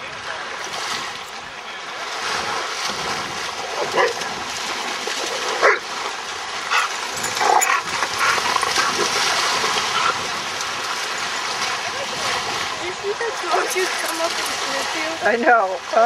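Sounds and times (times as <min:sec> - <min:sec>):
small lake waves: 0:00.0 - 0:16.0
dog splashing through water: 0:02.1 - 0:15.2
dog barking: 0:03.8 - 0:04.2, 0:05.6 - 0:05.8.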